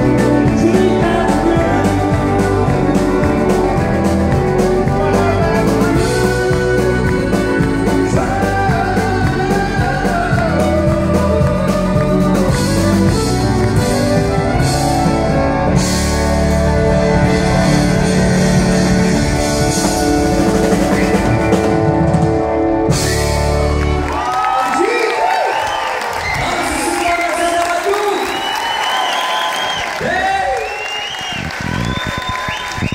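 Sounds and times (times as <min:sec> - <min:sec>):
person singing: 0:00.0 - 0:16.1
drum kit: 0:00.0 - 0:24.4
electric guitar: 0:00.0 - 0:24.6
keyboard: 0:00.0 - 0:25.0.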